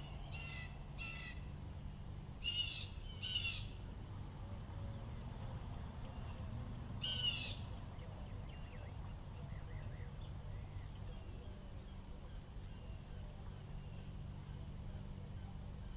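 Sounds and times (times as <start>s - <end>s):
bird harsh raspy call: 0.0s - 1.5s, 2.4s - 3.8s, 7.0s - 7.7s
steady low rumble: 0.0s - 15.9s.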